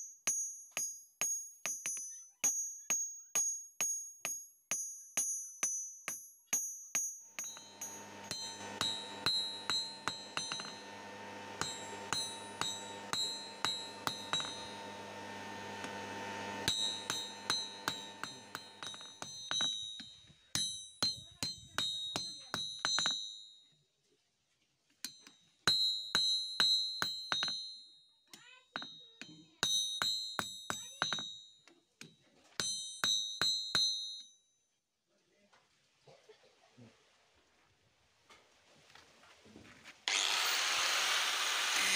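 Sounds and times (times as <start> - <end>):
hammer striking steel on anvil: 3.8 - 23.2
steady low hum: 7.4 - 19.0.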